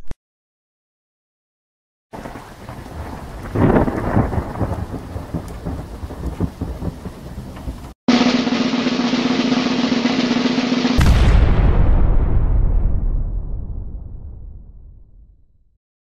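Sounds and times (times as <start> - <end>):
loud rumbling thunder clap: 2.2 - 8.6, 10.9 - 14.8
steady rain hiss: 2.2 - 10.0
snare drum roll: 8.1 - 11.4.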